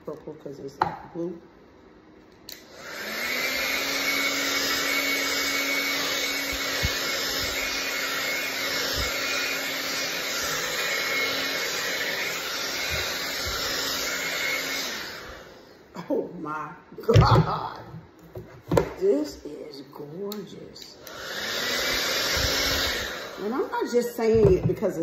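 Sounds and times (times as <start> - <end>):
hair dryer switch: 2.3 - 15.6, 20.1 - 23.7
hair dryer blowing air: 2.4 - 15.9, 18.8 - 25.0.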